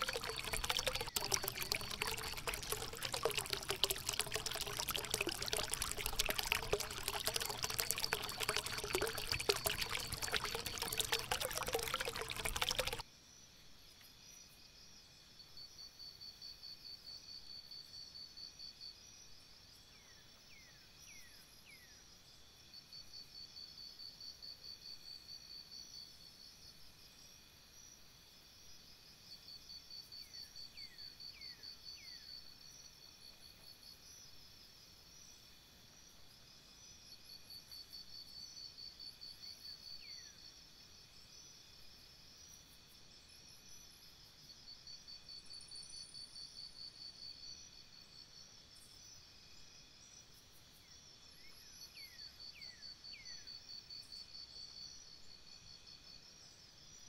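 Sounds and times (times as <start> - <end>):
high insect trills: 0.0 - 13.0.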